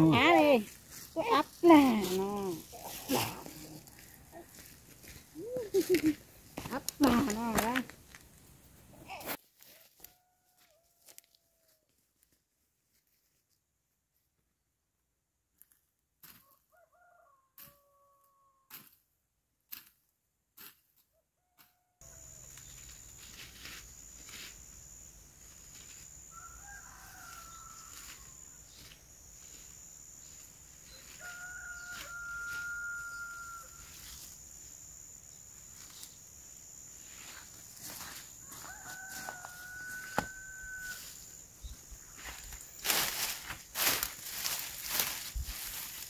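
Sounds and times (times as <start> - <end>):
rooster crowing: 9.7 - 11.8, 16.4 - 18.7, 26.2 - 28.9, 30.8 - 34.2, 37.8 - 41.4.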